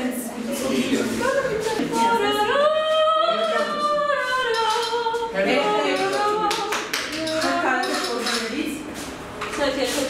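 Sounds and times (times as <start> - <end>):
woman singing unaccompanied: 1.2 - 8.6.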